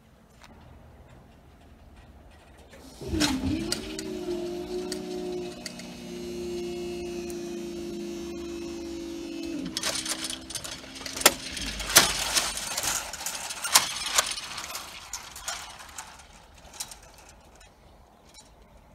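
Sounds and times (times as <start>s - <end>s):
barrier metallic clicks and clanks: 0.3s - 18.9s
steady hum: 2.8s - 17.6s.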